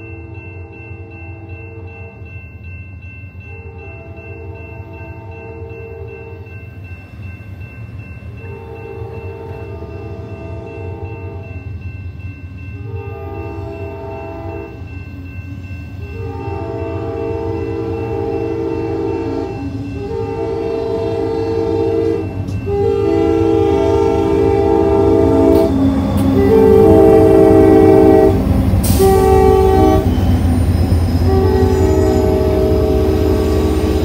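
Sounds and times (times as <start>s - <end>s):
train engine rumble: 0.0s - 34.0s
locomotive air horn blasts: 8.5s - 11.5s, 12.9s - 14.8s, 16.2s - 30.4s, 31.1s - 34.0s.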